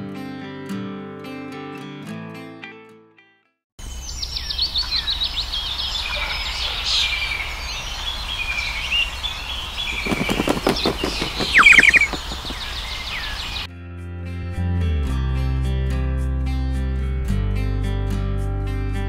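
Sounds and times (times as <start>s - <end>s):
songbirds chirping: 3.8s - 13.7s
fast falling whistles: 9.8s - 13.7s.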